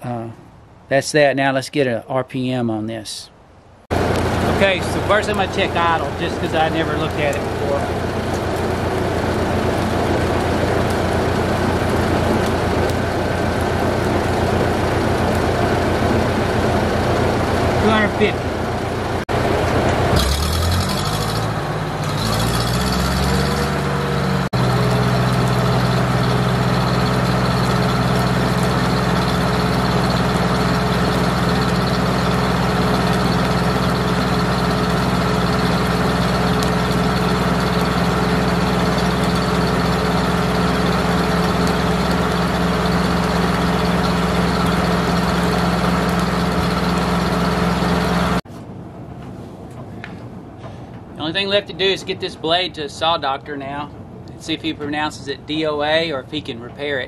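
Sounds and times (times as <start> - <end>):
tractor engine revving: 3.9 - 48.4.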